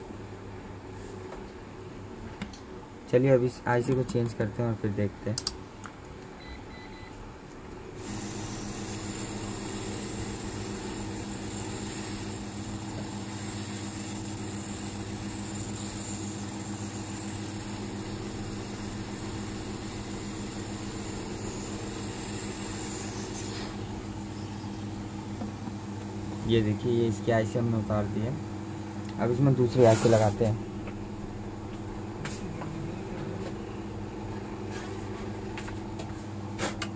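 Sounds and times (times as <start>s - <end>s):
hiss of hot air: 8.0s - 24.2s, 29.8s - 30.5s.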